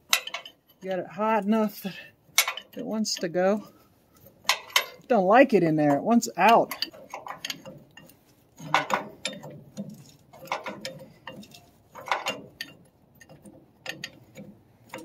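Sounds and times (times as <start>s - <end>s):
wrench metallic clicks: 0.0s - 0.6s, 2.4s - 2.9s, 5.9s - 15.0s.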